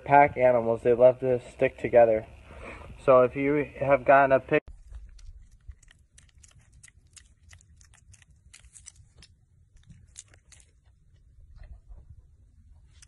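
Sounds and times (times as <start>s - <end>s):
piglet chewing and smacking: 4.7s - 13.0s.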